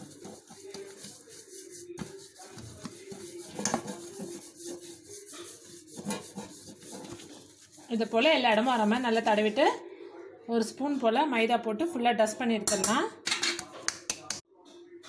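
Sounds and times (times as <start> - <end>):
fingers rubbing metal pan: 0.0 - 9.8.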